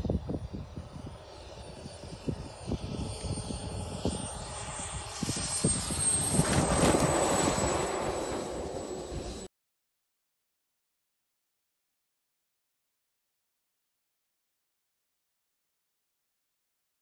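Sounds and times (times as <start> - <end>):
small jet turbine whining: 0.0 - 9.5
wind buffeting microphone: 0.0 - 9.5.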